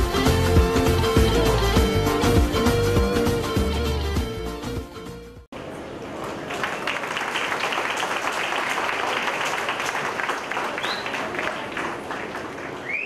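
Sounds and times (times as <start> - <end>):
crowd applauding: 6.1 - 13.0.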